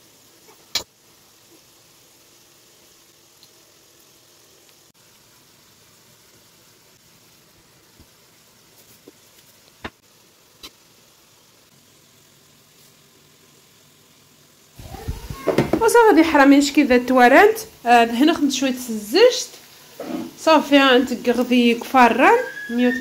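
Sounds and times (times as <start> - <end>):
faint steady hiss: 0.0 - 23.0.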